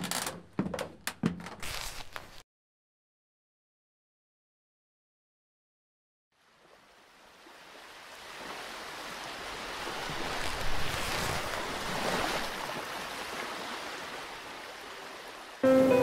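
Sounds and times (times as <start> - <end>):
ocean waves: 6.4 - 16.0.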